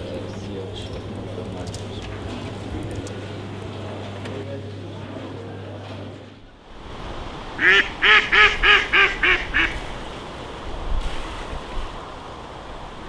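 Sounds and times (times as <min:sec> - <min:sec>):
duck quacking: 0:07.6 - 0:09.9.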